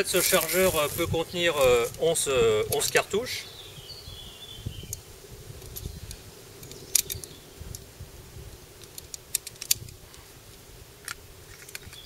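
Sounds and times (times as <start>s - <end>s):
cartridges clicking into magazine: 6.6s - 7.4s.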